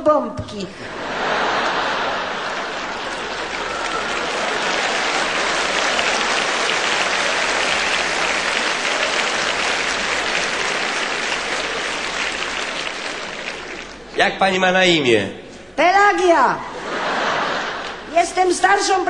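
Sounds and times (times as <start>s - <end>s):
audience applauding: 0.9s - 14.6s.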